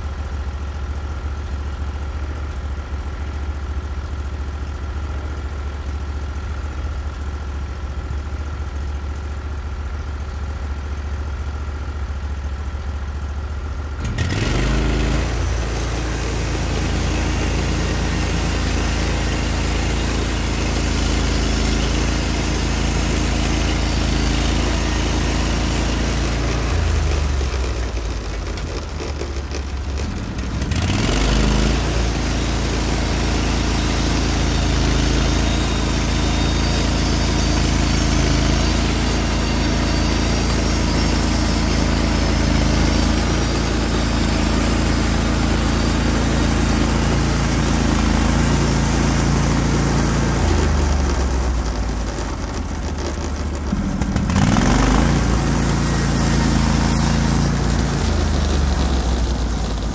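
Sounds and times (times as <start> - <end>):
sawmill engine running: 0.0 - 59.9.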